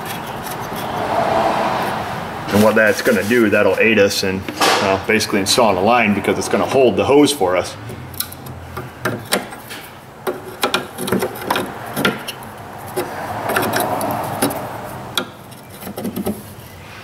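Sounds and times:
scraping rub: 0.0 - 3.9, 9.4 - 17.0.

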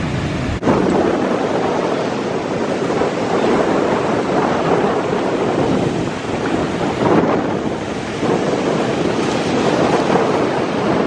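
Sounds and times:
small waves breaking on sand: 0.0 - 11.0
wind on the microphone: 0.0 - 11.0.

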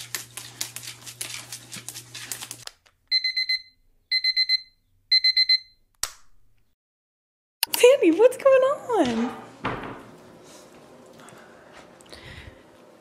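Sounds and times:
dog claws scratching wooden floor: 0.0 - 2.7
electronic alarm beeps: 3.1 - 5.8.

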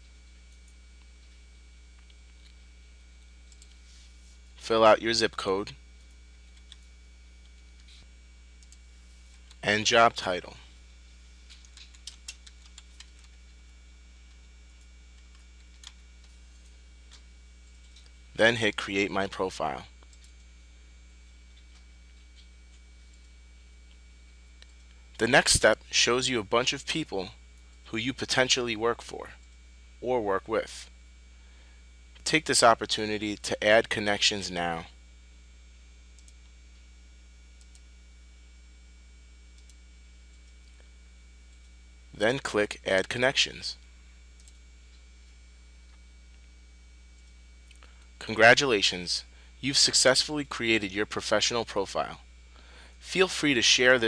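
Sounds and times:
steady low hum: 0.0 - 54.0
computer keyboard keystrokes: 11.5 - 13.4.

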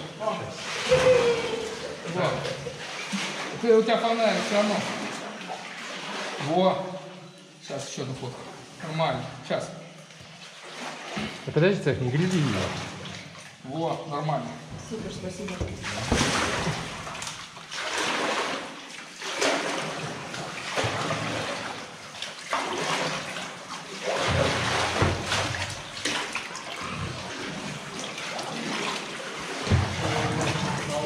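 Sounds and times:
paddle strokes splashing: 0.0 - 6.6, 10.2 - 11.5, 15.7 - 31.0
water dripping: 12.1 - 31.0.

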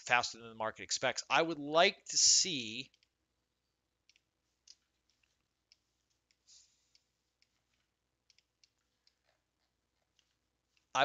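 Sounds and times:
computer mouse clicks: 4.0 - 10.9.

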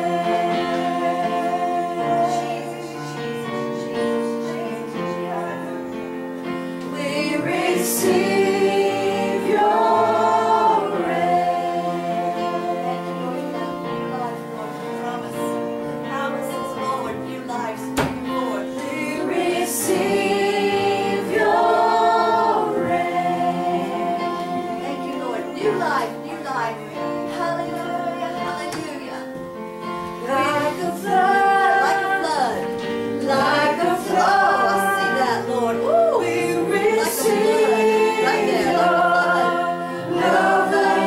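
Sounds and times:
group singing gospel song: 0.0 - 41.0.

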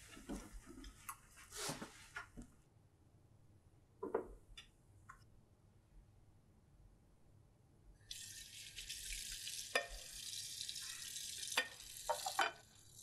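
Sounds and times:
tap water running: 8.1 - 13.0
plate clinking: 11.5 - 12.6.

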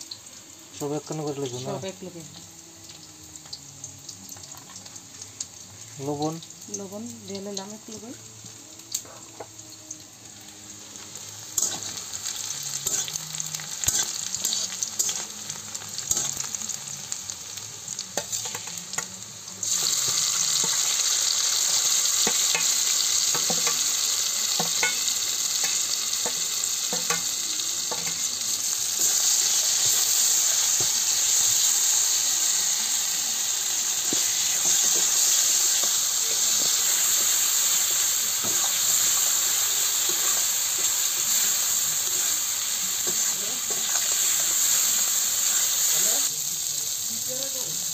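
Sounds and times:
food sizzling in hot oil: 0.0 - 47.9
metal spatula scraping a pan: 11.6 - 12.1, 12.7 - 13.2, 13.8 - 15.3.

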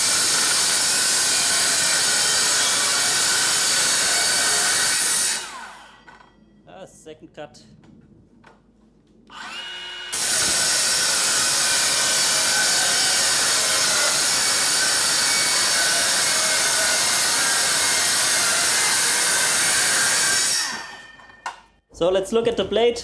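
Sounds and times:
circular saw cutting metal sheet: 0.0 - 6.1, 9.4 - 21.2.

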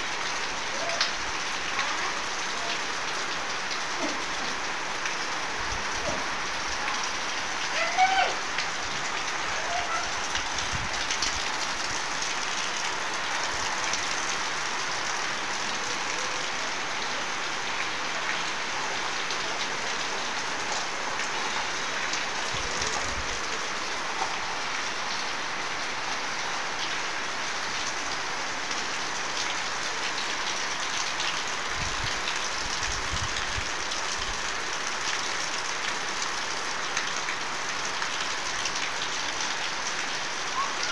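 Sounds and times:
steady rain pouring: 0.0 - 40.9.

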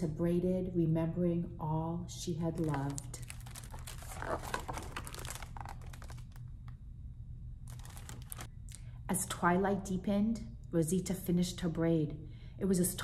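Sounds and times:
book pages rustling: 2.6 - 6.4, 7.7 - 8.5.

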